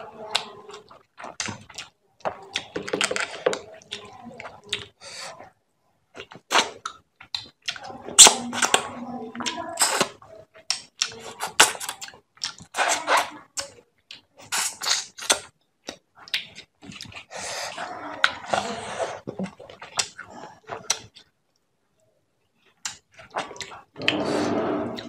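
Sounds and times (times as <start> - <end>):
wet squelches and clicks: 0.0 - 24.2.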